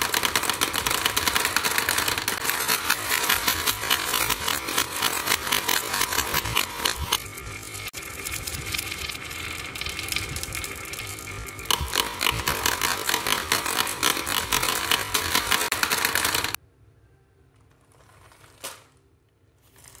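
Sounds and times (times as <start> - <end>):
marbles clattering down wooden slope: 0.0 - 7.2, 8.2 - 16.6.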